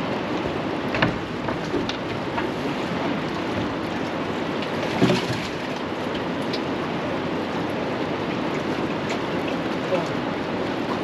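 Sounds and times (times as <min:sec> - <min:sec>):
water splashing against boat hull: 0:00.0 - 0:11.0
wind: 0:00.0 - 0:11.0.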